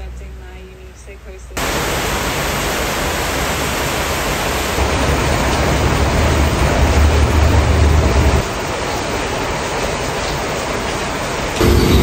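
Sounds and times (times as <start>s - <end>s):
rain falling: 1.6s - 12.0s
low rumble: 4.8s - 8.4s.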